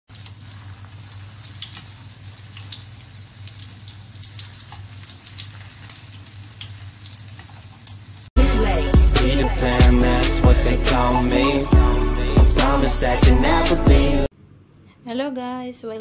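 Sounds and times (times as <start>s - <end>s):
frying sizzle and crackles: 0.1s - 8.3s
loud music: 8.4s - 14.3s.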